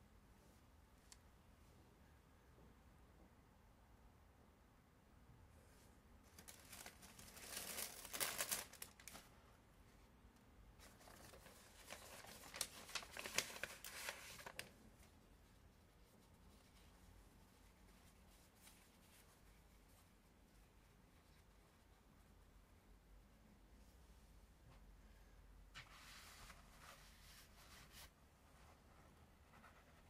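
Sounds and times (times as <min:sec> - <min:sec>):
faint room hiss: 0:00.0 - 0:30.0
dry material crinkling and rustling: 0:06.3 - 0:09.3, 0:10.8 - 0:15.2.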